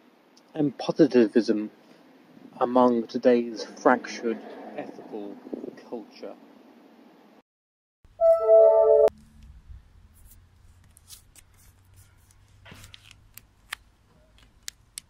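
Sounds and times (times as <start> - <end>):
paper card rustling: 10.2 - 15.0.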